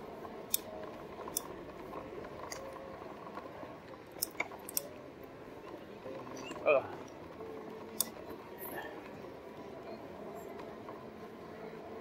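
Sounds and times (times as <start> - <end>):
bike clicks and rattles: 0.0 - 5.0.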